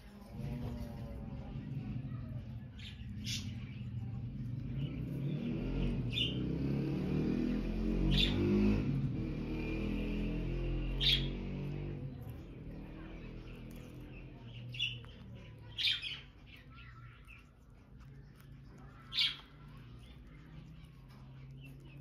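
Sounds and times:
low background rumble: 0.0s - 22.0s
parakeets chirping: 0.3s - 9.1s, 9.8s - 22.0s.

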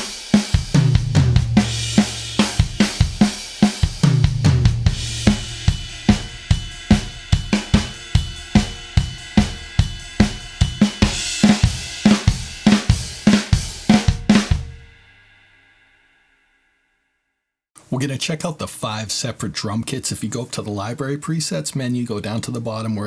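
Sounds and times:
acoustic drum kit groove: 0.0s - 15.4s
cymbals and drums ringing: 0.0s - 16.5s.

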